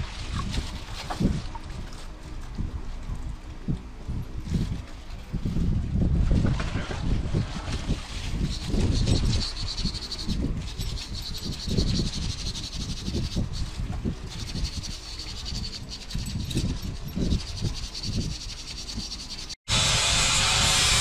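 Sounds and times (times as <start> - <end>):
wire brush scrubbing metal under water: 6.4 - 19.6.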